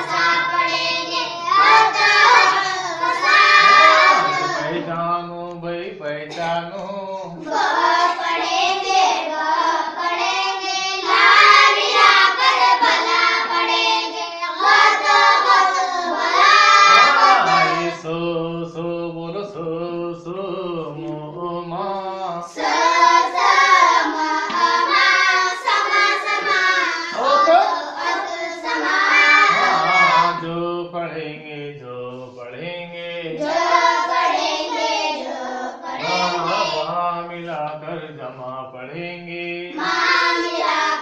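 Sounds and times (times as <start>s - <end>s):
children singing in unison: 0.0s - 5.0s, 7.2s - 18.3s, 20.8s - 30.6s, 33.2s - 37.5s, 39.6s - 41.0s.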